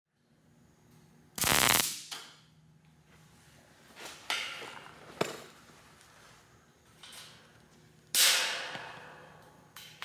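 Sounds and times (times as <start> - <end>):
welding arc crackling: 1.4 - 2.2.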